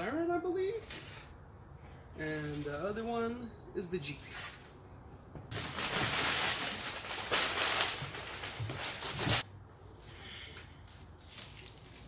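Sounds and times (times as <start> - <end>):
packing paper rustling: 5.5 - 9.4, 10.8 - 12.0.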